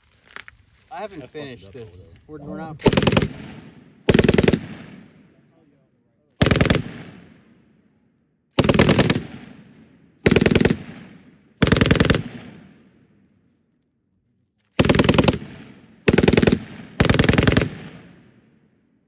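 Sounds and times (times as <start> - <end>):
machine gun bursts with echo: 2.8 - 5.2, 6.4 - 7.5, 8.6 - 13.0, 14.8 - 18.4.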